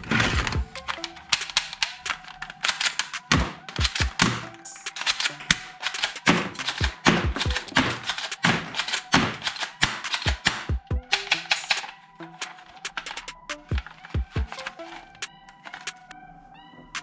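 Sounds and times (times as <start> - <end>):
plastic toy guns knocking: 0.1 - 11.9.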